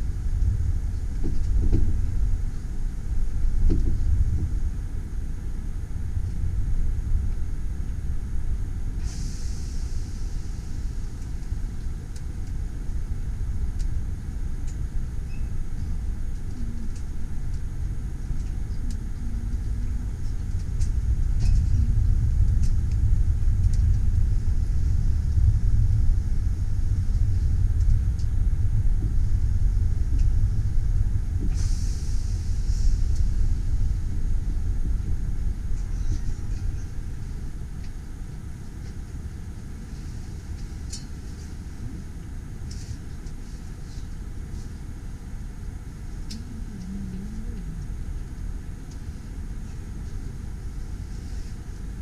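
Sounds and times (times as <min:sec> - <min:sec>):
train carriage rumble: 0:00.0 - 0:52.0
short hiss: 0:09.0 - 0:11.1, 0:31.5 - 0:33.2.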